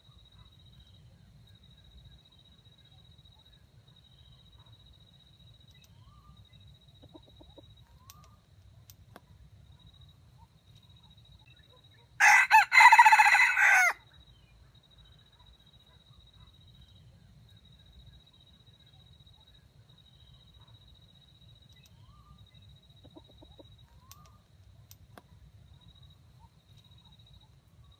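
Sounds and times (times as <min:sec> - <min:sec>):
rooster crowing: 0:12.2 - 0:14.0.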